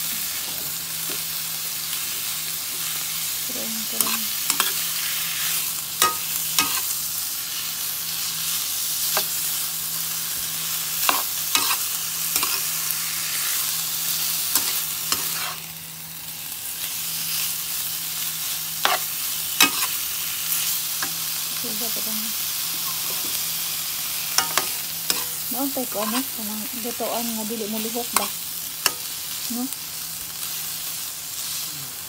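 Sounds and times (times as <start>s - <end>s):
pork sizzling in a wok: 0.0s - 32.0s
metal spoon scraping a pan: 3.9s - 6.9s, 11.0s - 12.8s, 14.4s - 15.6s, 18.8s - 20.0s, 22.8s - 23.4s, 24.3s - 26.9s
spoon clinking against pan: 24.4s - 25.3s.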